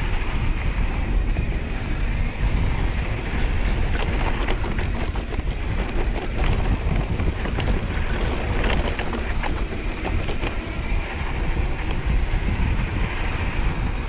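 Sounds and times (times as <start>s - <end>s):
knobby tyres rolling on dirt: 0.0s - 14.0s
wind buffeting microphone: 0.0s - 14.0s
bike knocks and rattles: 2.8s - 14.0s.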